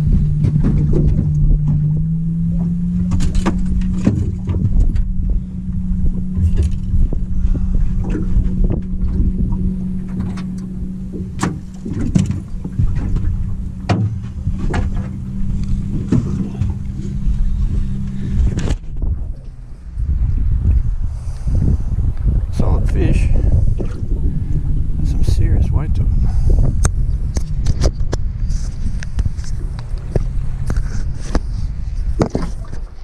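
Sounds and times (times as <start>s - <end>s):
boat motor humming: 0.0s - 33.0s
knocks and clicks: 10.1s - 15.2s.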